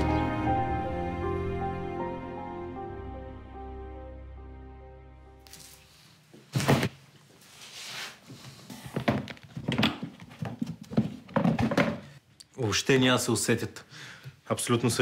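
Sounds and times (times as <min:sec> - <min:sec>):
briefcase knocks and clicks: 0:09.0 - 0:12.1.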